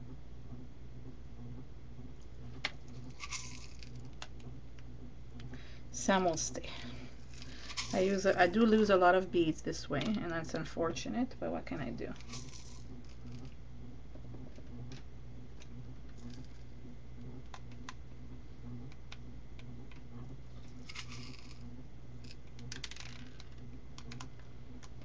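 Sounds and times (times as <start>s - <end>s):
low electrical hum: 0.0s - 25.0s
beads rattling: 2.9s - 4.1s, 7.1s - 8.3s, 12.2s - 13.6s, 20.6s - 21.6s
craft beads clicking on canvas: 7.3s - 8.1s.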